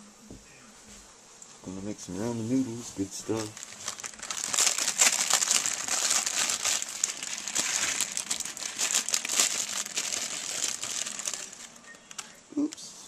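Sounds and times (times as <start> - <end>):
plastic packet crinkling: 3.0 - 12.4.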